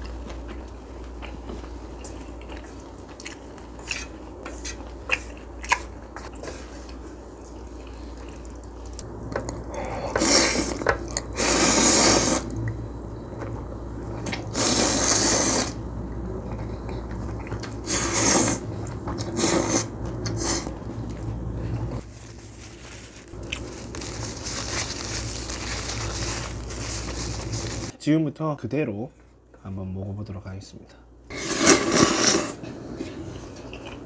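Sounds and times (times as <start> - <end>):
chewing: 0.0 - 9.0, 33.0 - 34.0
person slurping noodles: 10.0 - 12.5, 14.4 - 15.8, 17.8 - 20.7, 31.3 - 33.2.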